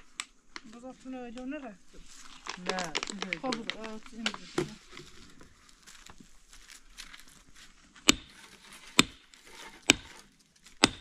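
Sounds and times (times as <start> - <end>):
faint rustling: 0.0 - 10.8.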